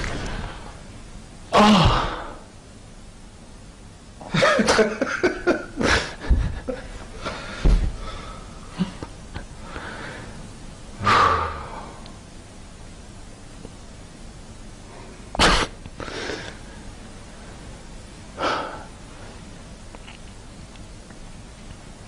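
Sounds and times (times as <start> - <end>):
men laughing: 4.2 - 7.4.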